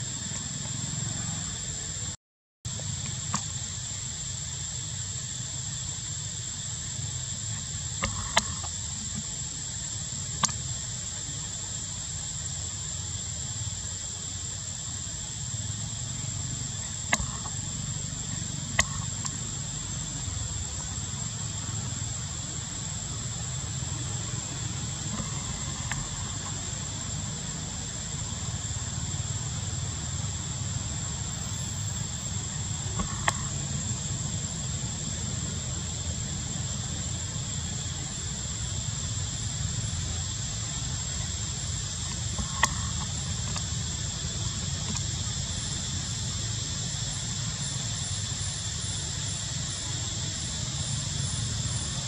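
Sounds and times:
high-pitched insect drone: 0.0s - 52.0s.

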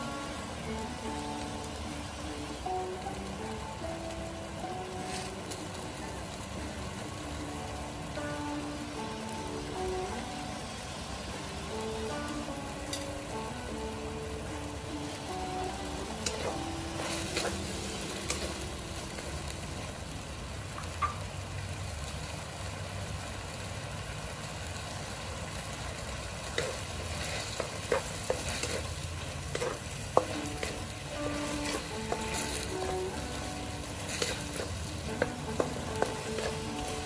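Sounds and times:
meat sizzling in a wok: 0.0s - 37.0s
wooden spatula scraping a wok: 4.9s - 5.6s, 15.9s - 19.4s, 26.4s - 37.0s.

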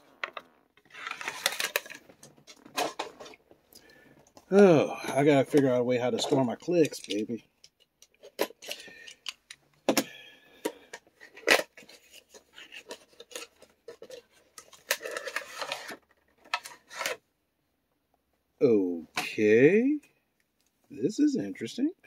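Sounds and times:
packaging crinkling and rustling: 0.0s - 3.6s, 11.2s - 17.2s
plastic figures clicking and tapping: 5.1s - 11.0s.

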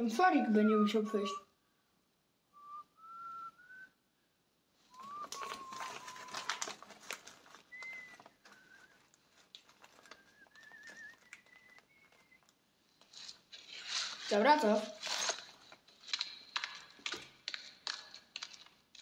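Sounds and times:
person whistling short notes: 2.6s - 4.0s, 4.9s - 6.8s, 7.5s - 9.1s, 9.8s - 12.5s
scratching and scraping: 4.9s - 19.0s.

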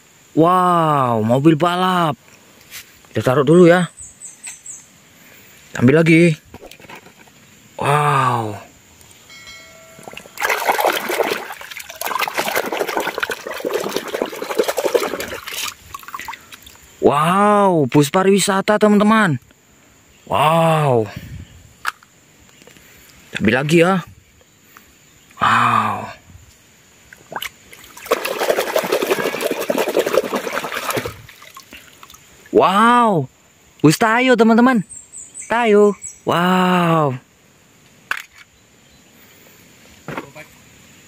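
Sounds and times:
water sloshing in a plastic bucket: 6.5s - 7.3s, 10.0s - 16.8s, 27.1s - 32.2s
hand scrubbing toy car underwater: 10.4s - 16.3s, 28.0s - 31.3s.

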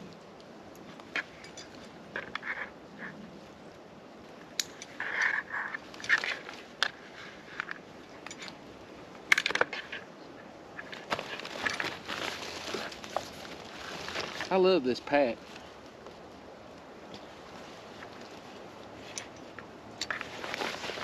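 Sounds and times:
backpack rustling and scraping: 0.9s - 3.4s, 4.7s - 8.6s, 10.7s - 14.6s, 17.2s - 21.0s.

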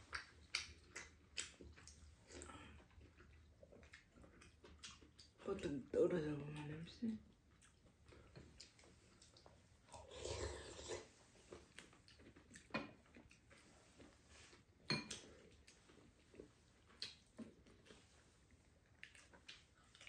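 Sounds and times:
soft chewing: 0.0s - 20.0s.

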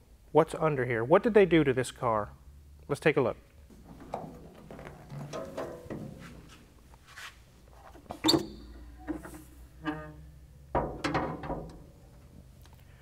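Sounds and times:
hood squeaking: 3.8s - 6.8s
metal car hood clanking: 3.9s - 6.5s, 10.8s - 11.9s.

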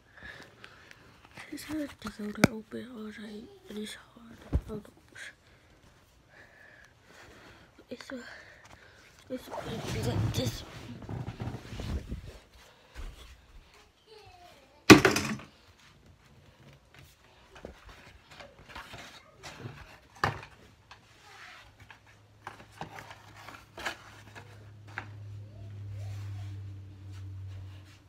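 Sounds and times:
objects being moved about: 8.6s - 13.3s, 14.9s - 15.9s, 16.5s - 28.0s.

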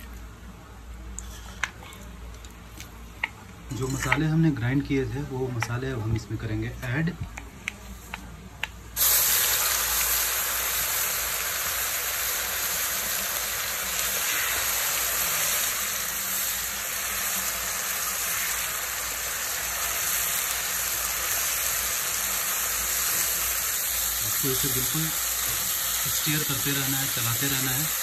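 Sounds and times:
paste sizzling in hot oil: 9.0s - 28.0s.

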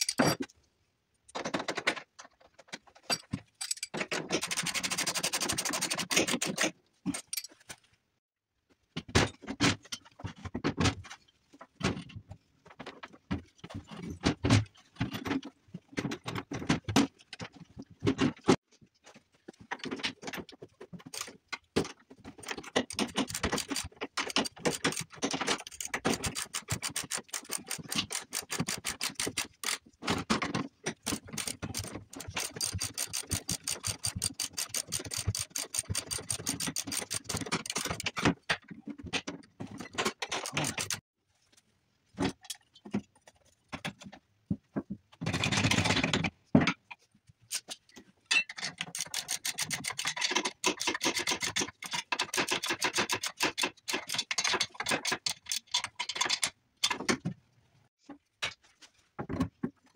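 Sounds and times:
hand tools and metal parts clinking: 0.0s - 0.6s, 1.3s - 7.9s, 19.0s - 41.0s, 45.2s - 57.3s.

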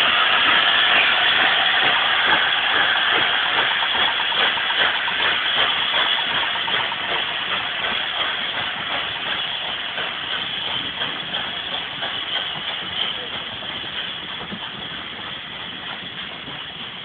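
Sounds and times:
steady steam hiss: 0.0s - 17.0s
steam locomotive exhaust beats: 0.0s - 17.0s.

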